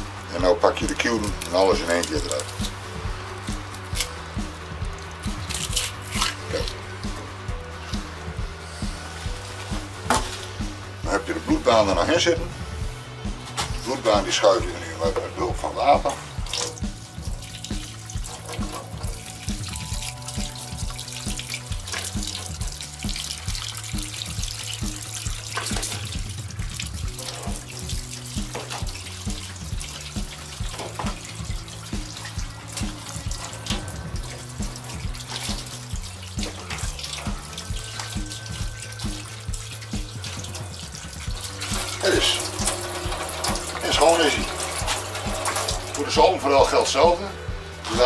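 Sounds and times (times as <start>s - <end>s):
background music with beat: 0.0s - 48.0s
tap water splashing into sink: 0.4s - 8.4s, 9.2s - 12.1s, 13.5s - 47.2s.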